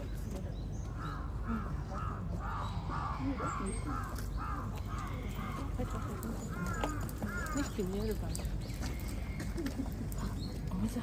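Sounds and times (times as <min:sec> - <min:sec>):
crow cawing: 0:01.0 - 0:08.1.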